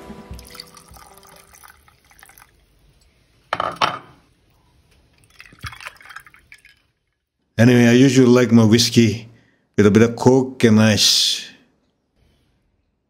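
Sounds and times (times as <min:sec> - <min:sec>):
cola fizzing: 0:00.2 - 0:03.2, 0:05.1 - 0:07.3
liquid pouring over ice: 0:00.3 - 0:02.8, 0:05.1 - 0:07.1.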